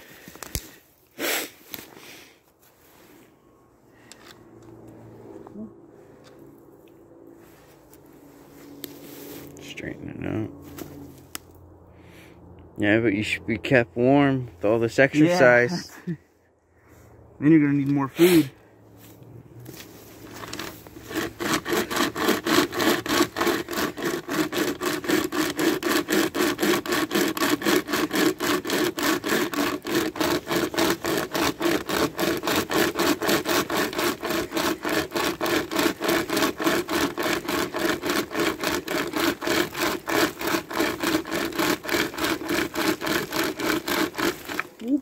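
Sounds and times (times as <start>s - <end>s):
hand chainsaw rasping through log: 19.8s - 45.0s.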